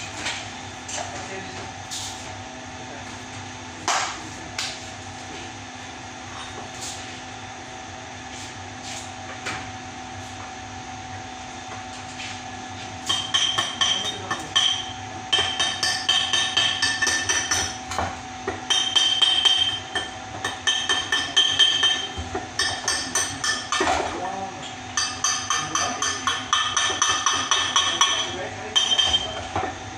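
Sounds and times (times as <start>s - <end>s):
hammer tapping on metal pipe: 13.1s - 17.8s, 18.6s - 23.9s, 25.0s - 29.2s.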